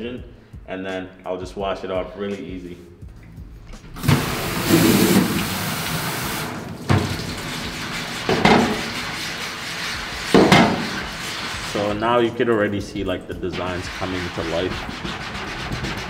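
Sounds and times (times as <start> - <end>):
tap water splashing: 3.2 - 11.4
hand scrubbing mesh: 3.8 - 16.0.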